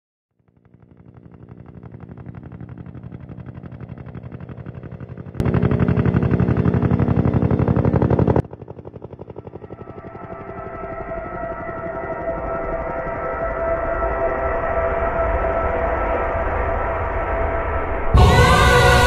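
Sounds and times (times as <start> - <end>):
helicopter rotor chopping: 0.4 - 14.3.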